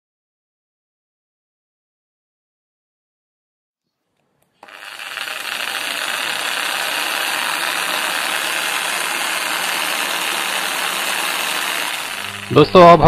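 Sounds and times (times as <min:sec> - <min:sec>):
jigsaw running: 0:04.6 - 0:13.0.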